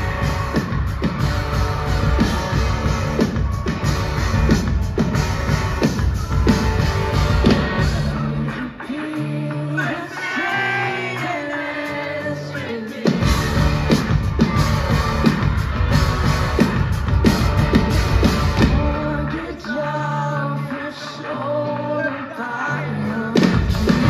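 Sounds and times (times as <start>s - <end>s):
drums: 0.0s - 24.0s
electric guitars: 0.0s - 24.0s
person singing: 6.5s - 17.1s, 18.4s - 24.0s.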